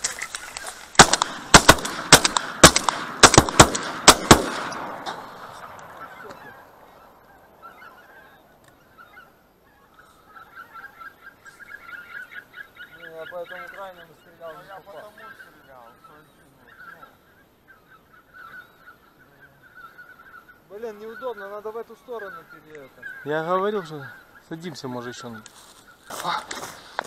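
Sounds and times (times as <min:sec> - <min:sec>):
geese honking: 0:00.0 - 0:27.0
shotgun shots with echo: 0:01.0 - 0:06.2.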